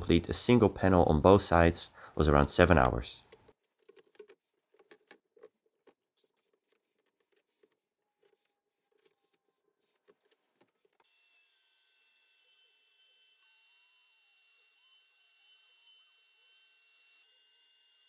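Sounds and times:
faint clicks and knocks: 2.8 - 11.0.

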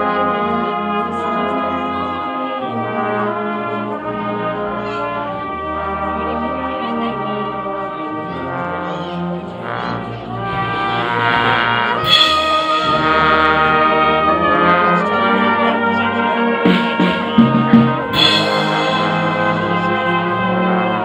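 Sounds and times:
brass band playing chords: 0.0 - 21.0
drum strokes: 11.2 - 14.0, 16.6 - 20.2
cymbal crash: 12.0 - 14.0, 16.7 - 20.3.

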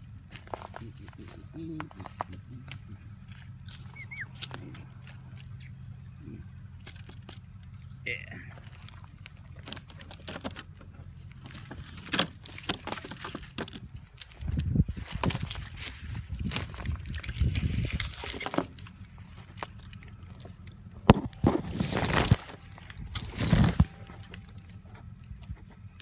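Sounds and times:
small metal object jingling: 9.4 - 20.9, 21.8 - 26.0.

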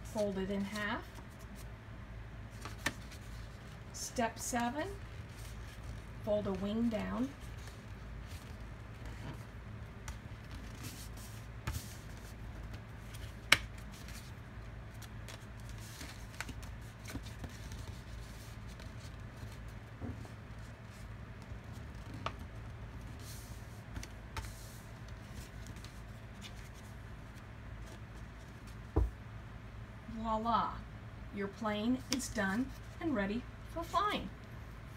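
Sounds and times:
low steady hum: 0.0 - 34.9
paper folding and rustling: 2.5 - 3.8, 4.8 - 29.0.

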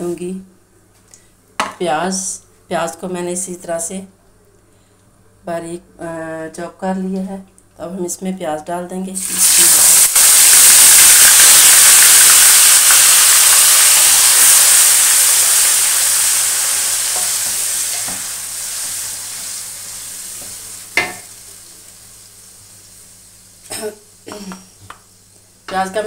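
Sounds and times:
onion paste sizzling in oil: 9.2 - 24.3.

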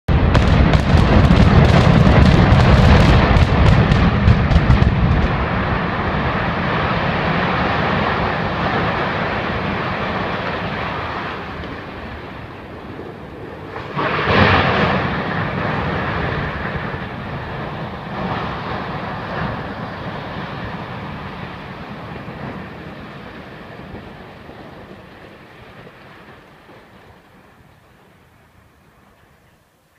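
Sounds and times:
explosive charges cracking: 0.1 - 9.2, 13.7 - 25.2
loud explosion boom: 0.1 - 10.1, 13.7 - 24.2
deep rumble: 0.1 - 27.4.

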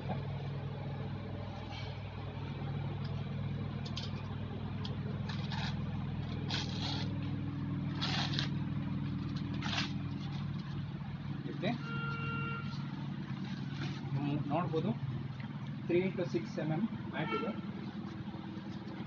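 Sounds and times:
low engine-like hum: 0.0 - 19.0
paper label ripping: 5.2 - 10.8.

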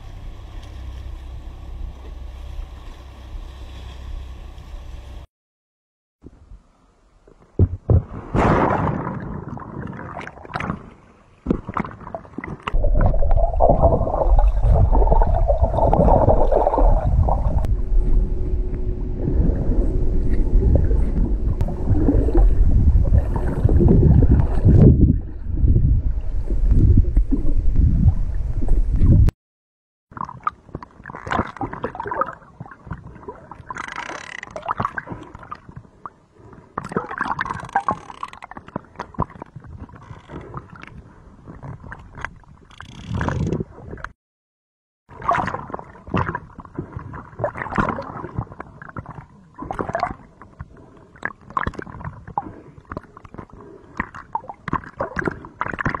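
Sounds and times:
water sloshing and gurgling: 0.0 - 5.3, 7.4 - 29.4, 30.1 - 44.2, 45.1 - 56.0
wind and boat rumble: 0.0 - 5.3, 6.2 - 29.4, 30.1 - 44.2, 45.1 - 56.0.

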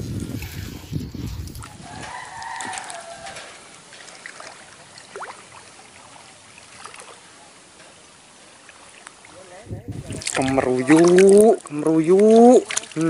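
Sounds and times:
rooster crowing: 1.7 - 3.7.

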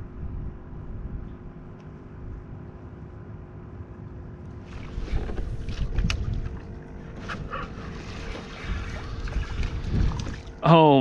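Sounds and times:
water lapping against a hull: 4.6 - 10.7
wind on microphone: 4.8 - 10.6.

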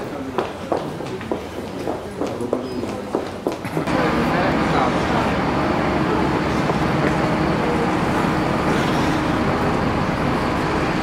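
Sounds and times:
bus engine running: 3.8 - 11.0.

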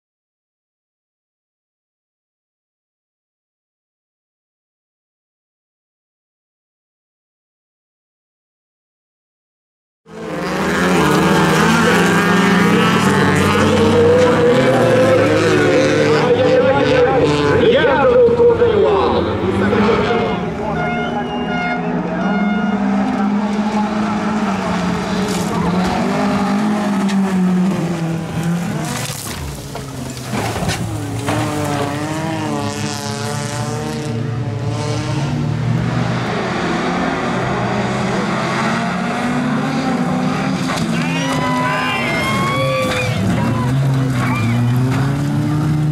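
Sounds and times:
racing car engines at high revs: 10.1 - 45.9
tyres skidding: 10.2 - 45.9.

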